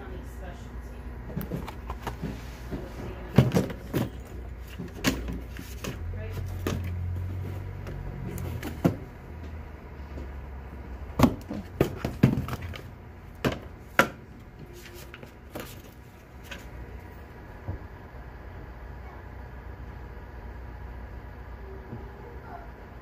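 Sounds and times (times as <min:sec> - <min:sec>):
picture frames knocking together: 0:03.2 - 0:07.2, 0:11.1 - 0:14.2.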